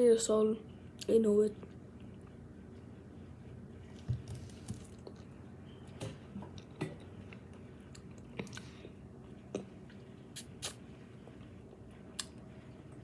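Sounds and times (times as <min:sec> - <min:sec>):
wet sucking and chewing clicks: 0:09.4 - 0:10.8.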